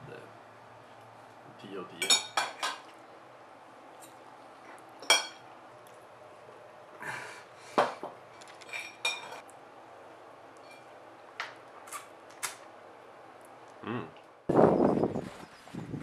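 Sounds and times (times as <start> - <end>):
cutlery clinking against dishes: 2.0 - 2.9, 5.0 - 5.4, 8.6 - 9.4.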